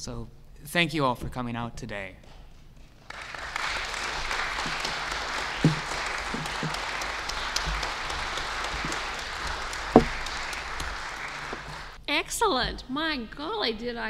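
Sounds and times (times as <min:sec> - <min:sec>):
audience applauding: 0:03.1 - 0:12.0
loud knock: 0:04.6 - 0:11.8.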